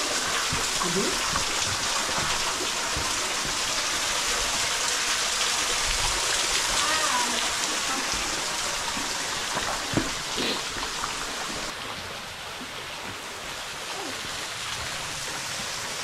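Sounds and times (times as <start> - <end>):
water splashing onto rock: 0.0 - 11.7.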